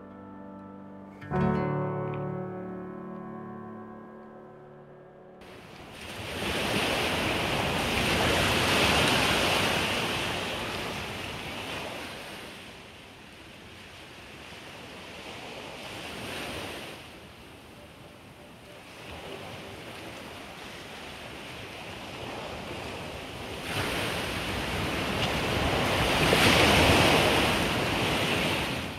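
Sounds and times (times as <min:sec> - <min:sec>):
ocean waves breaking on beach: 0:05.4 - 0:28.9.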